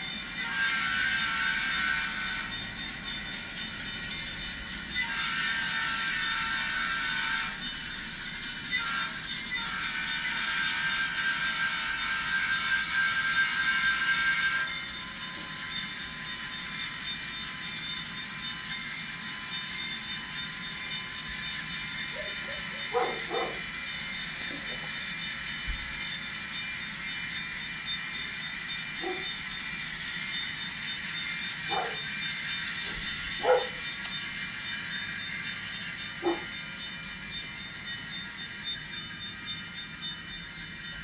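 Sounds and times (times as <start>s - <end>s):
model train horn blasts: 0.0s - 2.6s, 4.9s - 7.7s, 8.7s - 14.8s
model train running: 0.0s - 41.0s.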